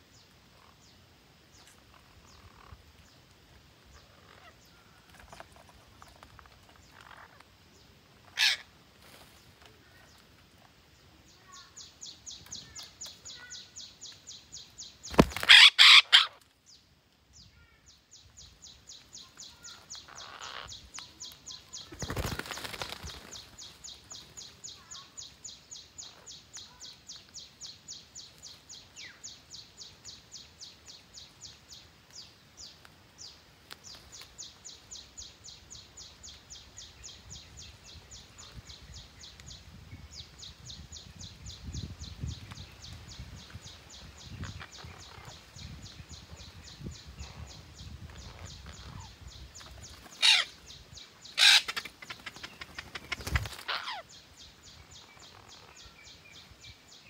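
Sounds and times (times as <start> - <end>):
parrots squawking harshly: 8.3 - 8.6, 15.4 - 16.4, 50.2 - 50.5, 51.4 - 51.8, 53.7 - 54.0.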